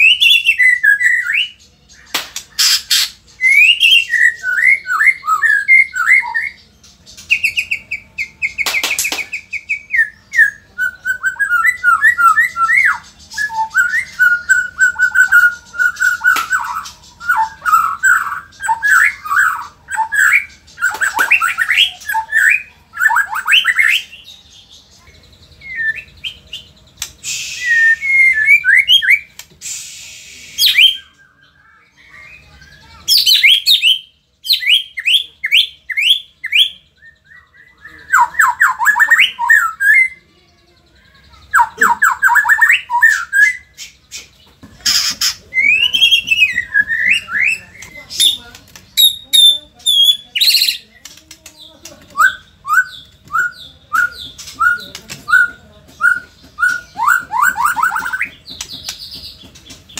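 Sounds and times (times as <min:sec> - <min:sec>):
bird singing whistled trills: 0:00.0 - 0:40.2, 0:41.0 - 0:48.4, 0:49.0 - 0:50.9, 0:52.1 - 0:59.1
harsh hissing bird rasp: 0:02.4 - 0:03.3, 0:27.0 - 0:28.0, 0:29.5 - 0:30.8, 0:43.8 - 0:45.5.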